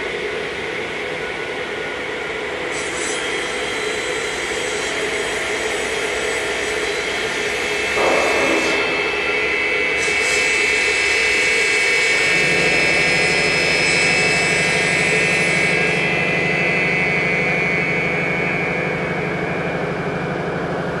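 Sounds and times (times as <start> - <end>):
router blade high whine: 0.0 - 21.0.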